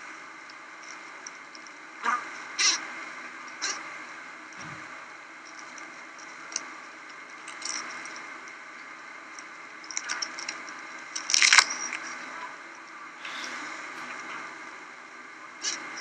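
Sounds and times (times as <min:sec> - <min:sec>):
bee colony humming: 0:11.2 - 0:16.0.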